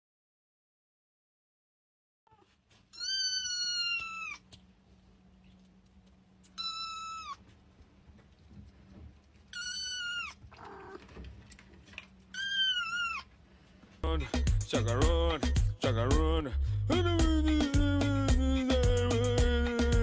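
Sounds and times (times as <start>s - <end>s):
kitten mewing: 2.3s - 4.6s, 6.4s - 7.5s, 9.5s - 11.1s, 12.3s - 13.3s.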